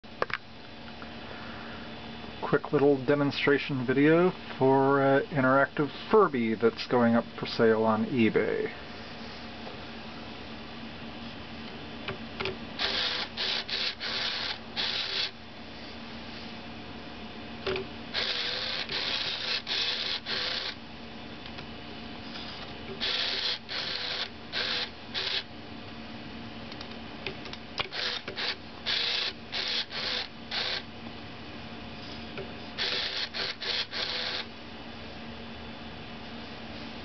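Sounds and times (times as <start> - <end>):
steady low hum: 0.0 - 37.0
toy motor and gears whirring: 12.8 - 15.4, 18.2 - 20.8, 23.0 - 25.5, 27.8 - 30.9, 32.8 - 34.5.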